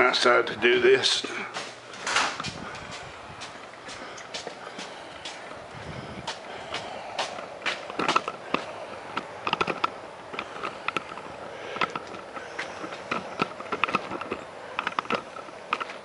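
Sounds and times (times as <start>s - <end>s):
footsteps: 1.1s - 16.0s.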